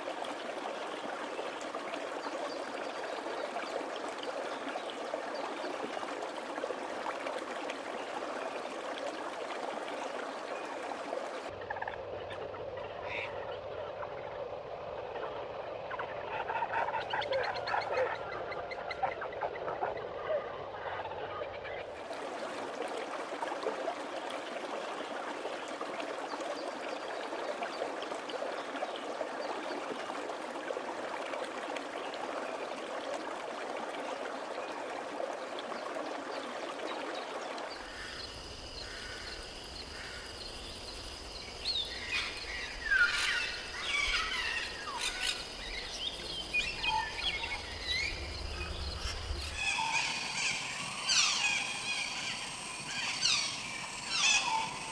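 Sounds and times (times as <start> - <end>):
birds chirping and calling: 46.6 - 54.9.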